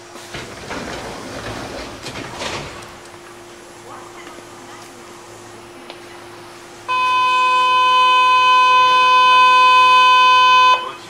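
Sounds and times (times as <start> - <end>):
electronic buzzer tone: 6.9 - 11.0.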